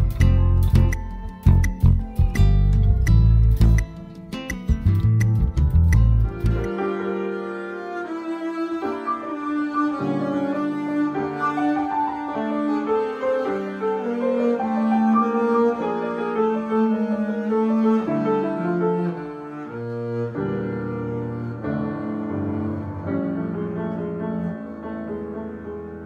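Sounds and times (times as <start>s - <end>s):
bowed double bass melody: 0.0s - 8.3s, 12.6s - 24.7s.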